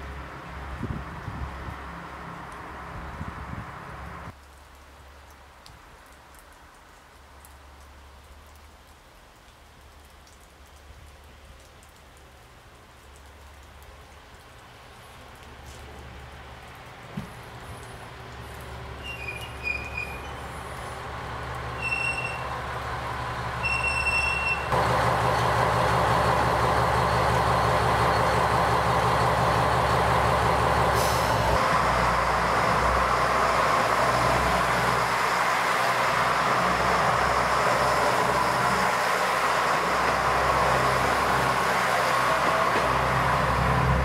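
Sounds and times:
diesel railcar engine running: 0:16.5 - 0:44.0.

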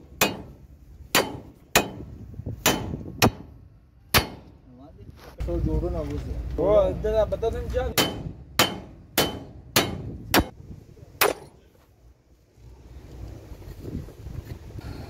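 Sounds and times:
hammer striking metal: 0:00.2 - 0:04.6, 0:07.9 - 0:10.5.

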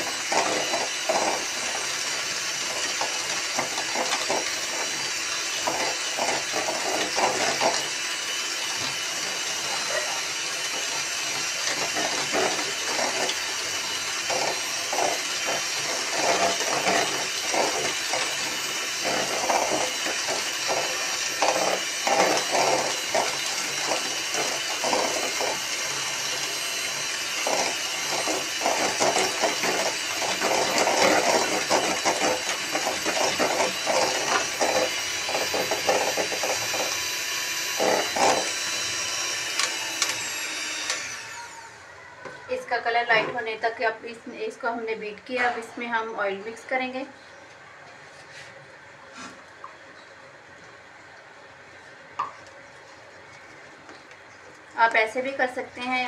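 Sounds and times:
electric hand mixer whisking: 0:00.0 - 0:41.9.

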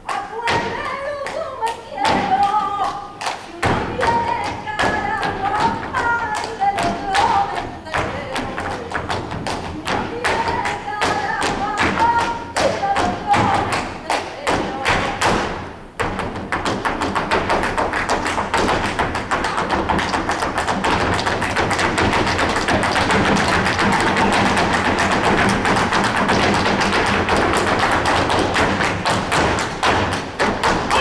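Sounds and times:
rhythmic hand clapping: 0:00.0 - 0:31.0
music: 0:30.6 - 0:31.0.

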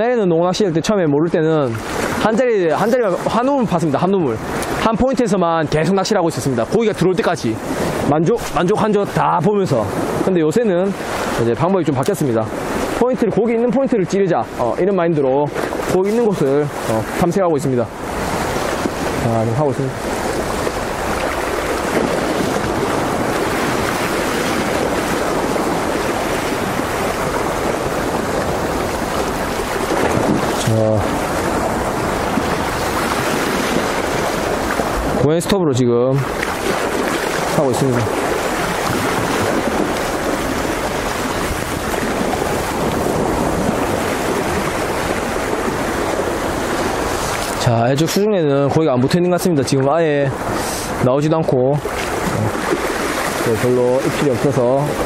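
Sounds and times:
surf washing on rocky shore: 0:00.0 - 0:55.0.

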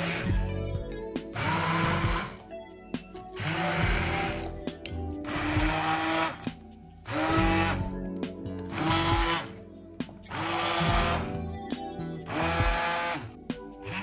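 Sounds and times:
immersion blender running: 0:00.0 - 0:00.4, 0:01.4 - 0:02.4, 0:03.4 - 0:04.6, 0:05.2 - 0:06.5, 0:07.1 - 0:07.9, 0:08.7 - 0:09.6, 0:10.3 - 0:11.3, 0:12.3 - 0:14.0.

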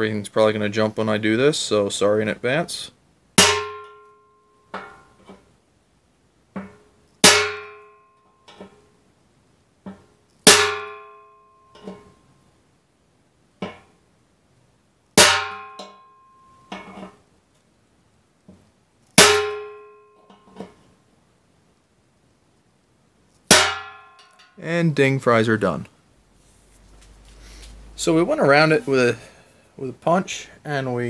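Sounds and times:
mallet striking metal punch: 0:03.4 - 0:04.1, 0:07.2 - 0:08.0, 0:10.5 - 0:11.2, 0:15.2 - 0:16.0, 0:19.2 - 0:20.0, 0:23.5 - 0:24.3
metal tank ringing: 0:03.4 - 0:05.4, 0:07.2 - 0:08.8, 0:10.5 - 0:12.2, 0:15.2 - 0:17.1, 0:19.2 - 0:20.8, 0:23.5 - 0:24.6.

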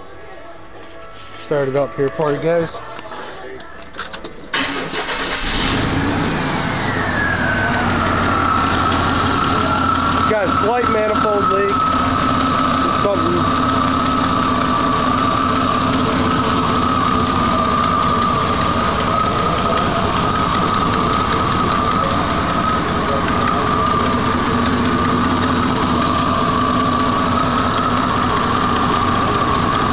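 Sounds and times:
car engine idling: 0:04.4 - 0:29.9.

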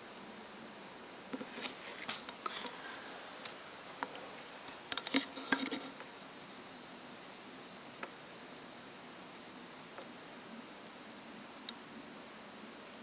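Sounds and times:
faint steady hiss: 0:00.0 - 0:13.0
soft handling clicks and rustles: 0:01.4 - 0:06.1.

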